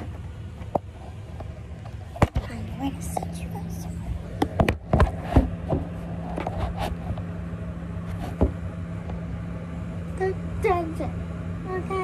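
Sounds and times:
steady low hum: 0:00.0 - 0:12.0
camera handling knocks and rubs: 0:08.1 - 0:08.6.

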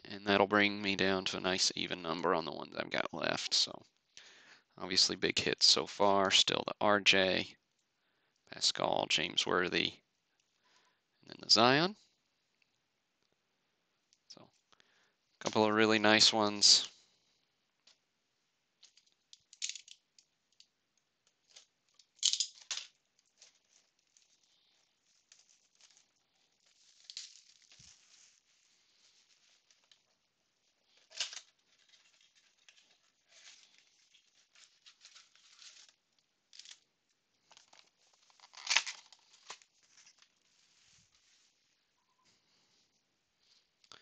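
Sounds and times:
foil packs rustling and crinkling: 0:21.4 - 0:30.2, 0:30.8 - 0:36.8, 0:37.4 - 0:41.6.

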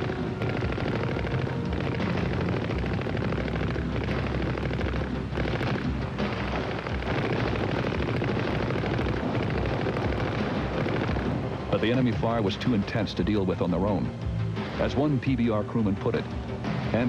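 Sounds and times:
machine-gun fire: 0:00.0 - 0:12.4, 0:16.6 - 0:17.0
explosions: 0:00.0 - 0:12.7.

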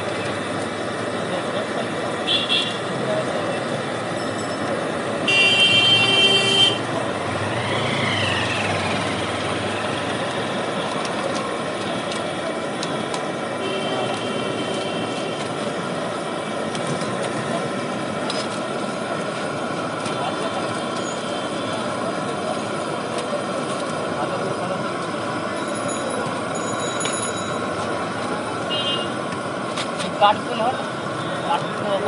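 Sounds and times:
street traffic: 0:00.0 - 0:32.0
vehicle horn honking: 0:02.3 - 0:02.8, 0:05.3 - 0:06.8, 0:13.6 - 0:15.2, 0:28.7 - 0:29.2.

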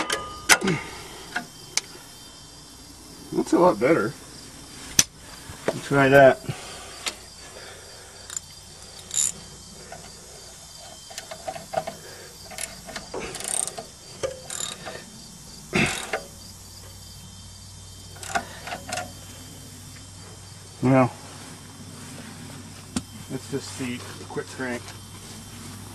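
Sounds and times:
metal tools clinking: 0:00.0 - 0:00.9, 0:08.3 - 0:15.1, 0:18.1 - 0:19.2
hand ratchet clicking: 0:08.3 - 0:10.1, 0:10.8 - 0:15.0, 0:15.8 - 0:16.3, 0:18.1 - 0:19.2.

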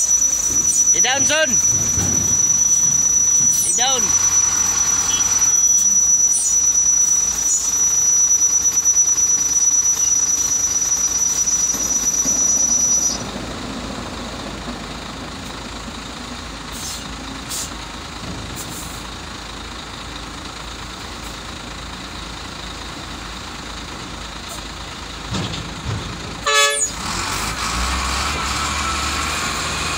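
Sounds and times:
high-pitched hydraulic whine: 0:00.0 - 0:13.3
truck engine running: 0:00.0 - 0:29.9
short hisses: 0:16.8 - 0:17.8.

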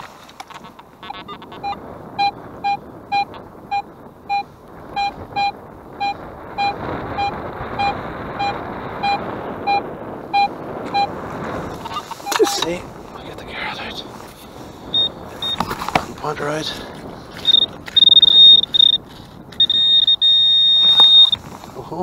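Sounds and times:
metal detector beeping: 0:01.0 - 0:11.1, 0:11.9 - 0:12.6, 0:14.9 - 0:15.7, 0:17.4 - 0:21.4.

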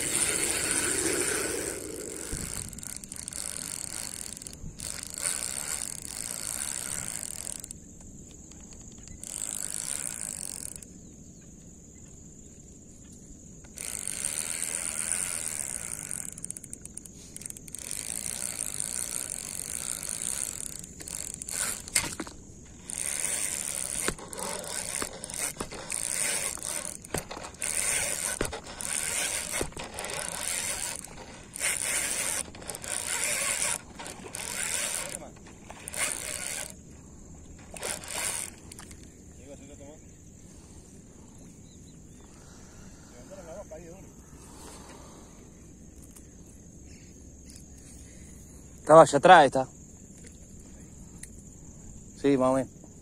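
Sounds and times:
fishing reel cranking: 0:00.0 - 0:10.9, 0:13.6 - 0:36.8, 0:37.5 - 0:39.1.

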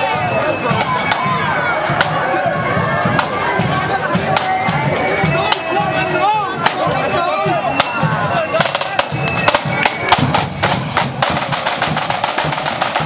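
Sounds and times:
side drums playing fast rolls: 0:00.0 - 0:13.0.

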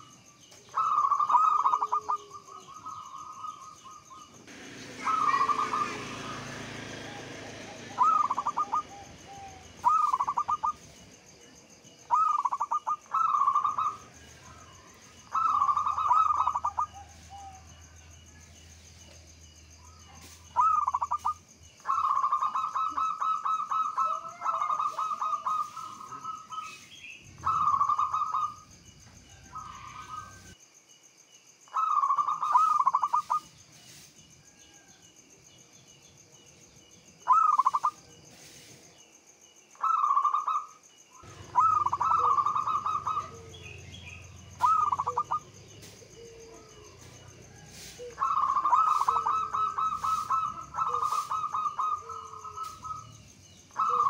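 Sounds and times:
dove cooing: 0:00.0 - 0:11.1, 0:12.0 - 0:18.1, 0:20.0 - 0:30.6, 0:31.7 - 0:33.6, 0:37.3 - 0:38.0, 0:39.8 - 0:54.0
rapid rolling bird notes: 0:00.8 - 0:11.0, 0:12.1 - 0:17.5, 0:20.2 - 0:28.7, 0:41.2 - 0:54.0.

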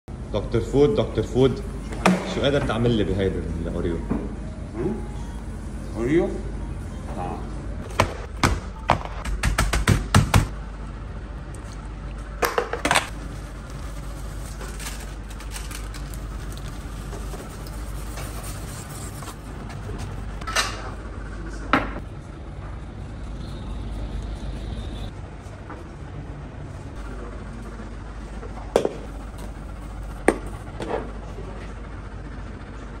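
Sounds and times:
steady low hum: 0:00.1 - 0:33.0.

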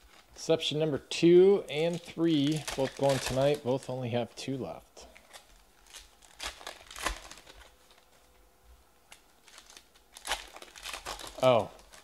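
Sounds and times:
card wrapper crinkling and rustling: 0:00.0 - 0:00.4, 0:01.6 - 0:04.0, 0:05.0 - 0:08.3, 0:09.1 - 0:12.0.

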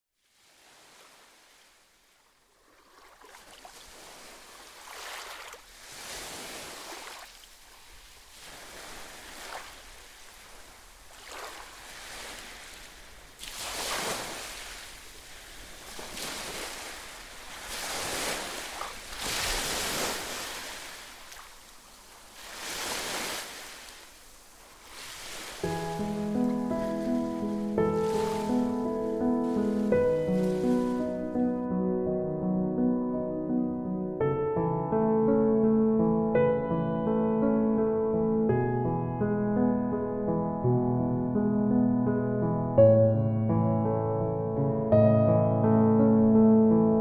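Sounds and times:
sea waves washing onto beach: 0:00.2 - 0:31.6.

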